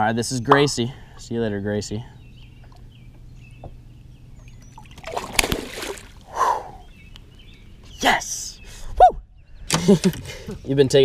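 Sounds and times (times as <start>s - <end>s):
fish splashing in water: 4.8s - 6.2s.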